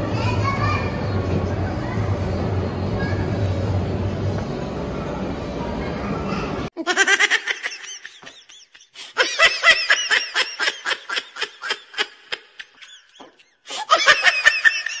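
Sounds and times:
high-pitched giggling: 0:06.8 - 0:15.0.

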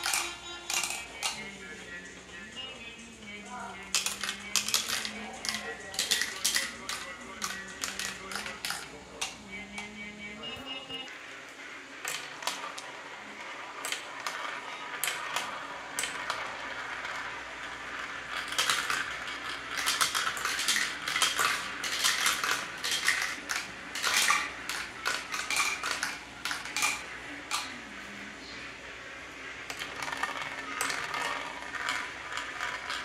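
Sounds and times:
marbles clicking on plastic: 0:00.0 - 0:01.5, 0:03.9 - 0:09.9, 0:13.5 - 0:27.7, 0:29.7 - 0:33.0
marbles rolling on plastic tracks: 0:00.0 - 0:10.2, 0:11.2 - 0:33.0.

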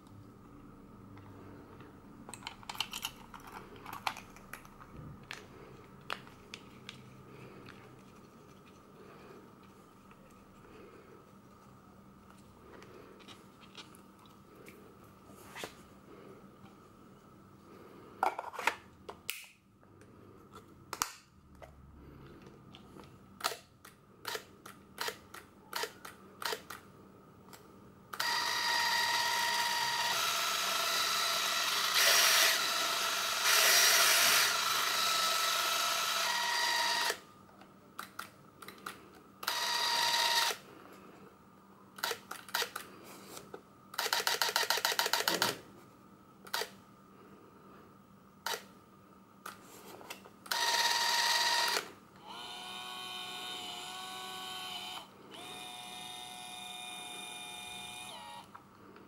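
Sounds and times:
camera motor whine: 0:28.2 - 0:37.2, 0:39.4 - 0:40.6, 0:50.5 - 0:58.5.

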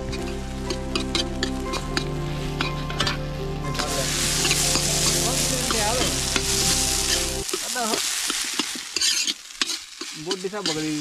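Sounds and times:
rice sizzling in a pan: 0:00.0 - 0:11.0
ladle scraping a pan: 0:03.8 - 0:11.0.

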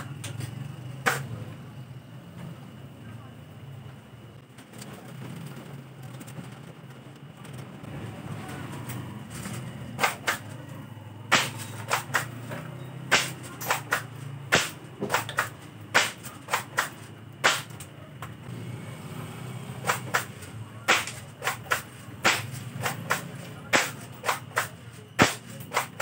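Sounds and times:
airsoft shotgun racking and firing: 0:11.3 - 0:12.4, 0:13.1 - 0:17.9.

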